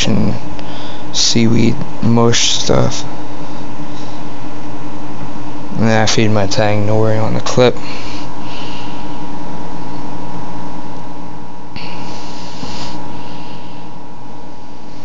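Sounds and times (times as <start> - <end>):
mechanical hum: 0.0 - 15.0
even hiss: 11.8 - 13.9.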